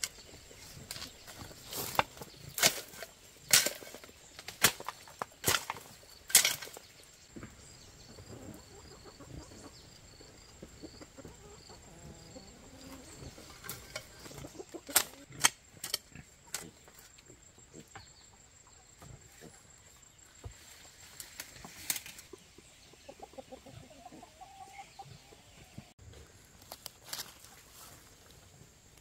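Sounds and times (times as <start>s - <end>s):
chickens clucking: 0.0s - 25.9s
hoe chopping into soil: 0.9s - 6.8s.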